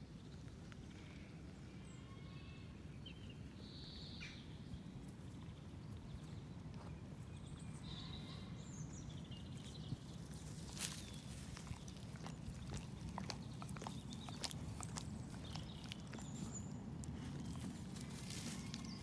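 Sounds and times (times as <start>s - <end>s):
steady low rumble: 8.8s - 19.0s.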